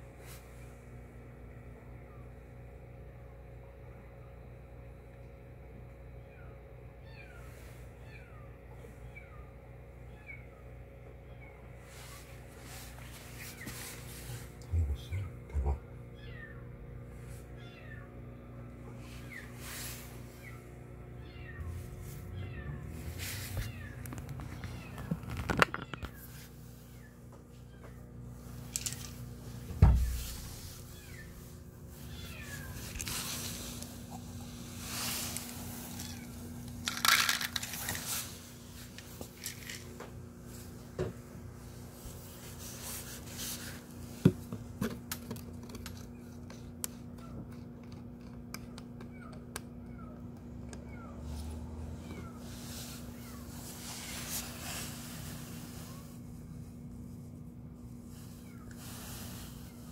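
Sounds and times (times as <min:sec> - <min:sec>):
kitten meowing: 0:21.2 - 0:25.1
loud thump: 0:29.7 - 0:30.3.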